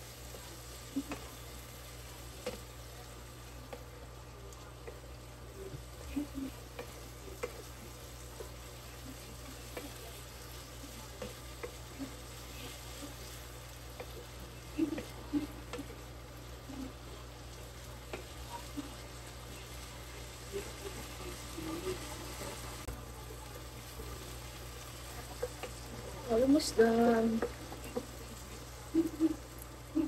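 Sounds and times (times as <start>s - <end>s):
faint sizzle: 0.0s - 30.0s.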